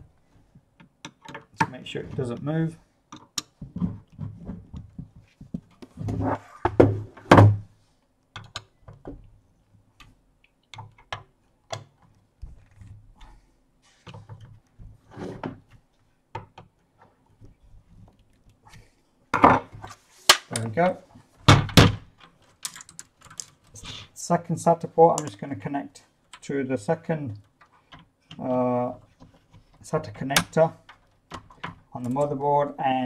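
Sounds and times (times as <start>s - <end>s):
metal case knocks and thunks: 21.5s - 22.0s.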